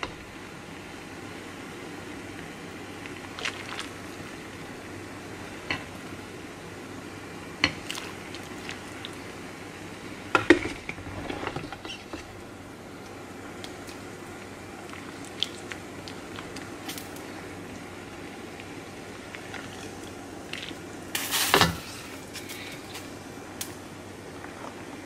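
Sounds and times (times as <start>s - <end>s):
steady background hum: 0.0s - 25.0s
soup splashing: 14.9s - 17.1s.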